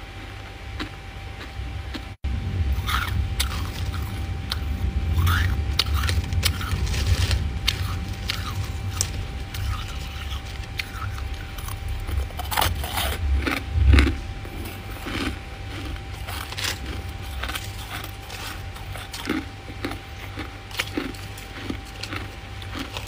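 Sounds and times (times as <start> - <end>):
faint hum: 0.0 - 23.0
frost crunching and scraping: 0.0 - 23.0.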